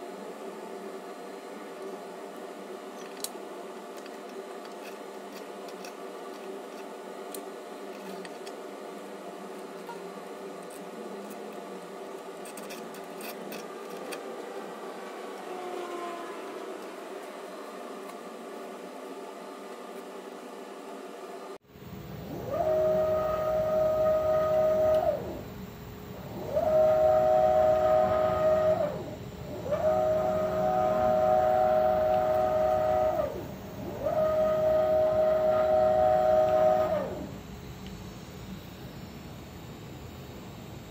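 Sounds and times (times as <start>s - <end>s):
background hum: 0.0s - 40.9s
metal parts clicking and tapping: 4.0s - 8.6s, 12.4s - 14.2s
stepper motors whining: 21.9s - 40.9s.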